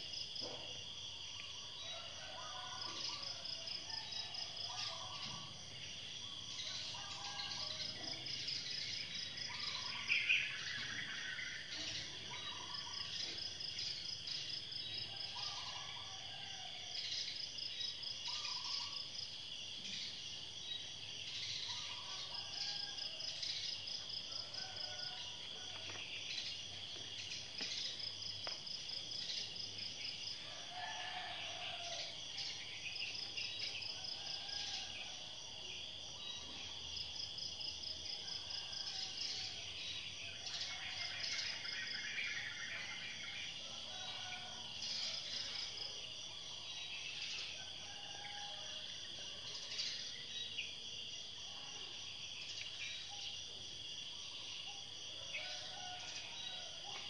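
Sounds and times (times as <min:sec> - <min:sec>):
insects chirping and trilling: 0:00.0 - 0:57.0.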